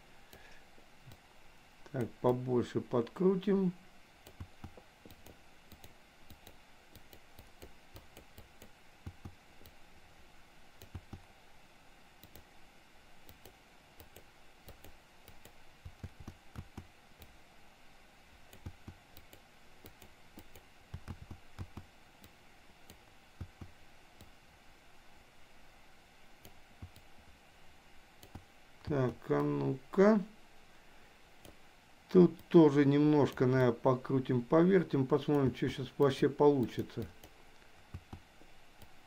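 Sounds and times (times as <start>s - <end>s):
steady low hiss: 0.0s - 39.0s
computer input clicks and taps: 4.2s - 9.8s, 10.8s - 11.3s, 13.3s - 17.4s, 18.5s - 24.3s, 28.2s - 29.5s, 36.7s - 38.3s.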